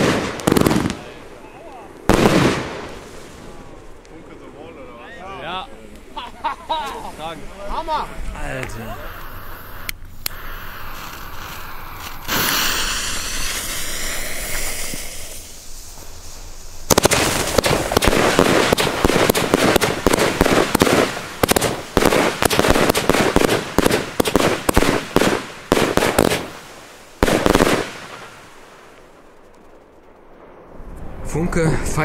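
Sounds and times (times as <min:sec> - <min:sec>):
steady hiss: 0:00.0 - 0:30.6
fireworks bursting and crackling: 0:00.0 - 0:32.0
firework launch thuds: 0:10.3 - 0:16.2.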